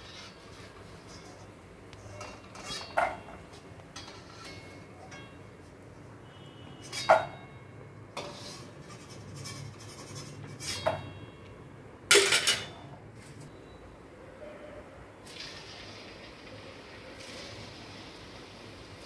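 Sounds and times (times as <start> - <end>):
metal utensil clinking on pan: 2.1 - 5.5, 12.1 - 12.8.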